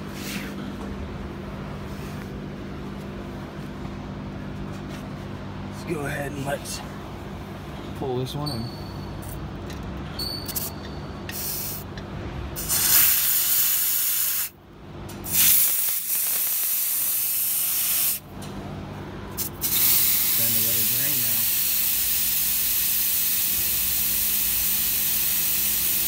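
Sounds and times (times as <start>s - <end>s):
compressed air hissing from valve: 11.3s - 11.9s, 12.6s - 14.6s, 15.3s - 18.2s, 19.4s - 26.0s.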